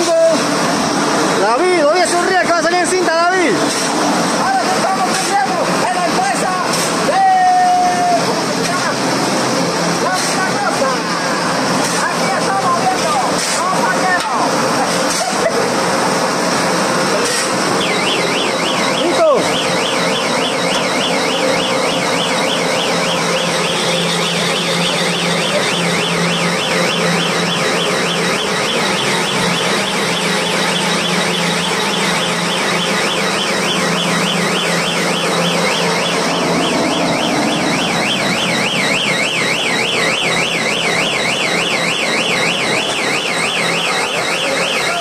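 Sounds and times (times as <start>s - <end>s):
baler machine humming: 10.8s - 45.0s
electronic alarm warbling: 15.4s - 45.0s.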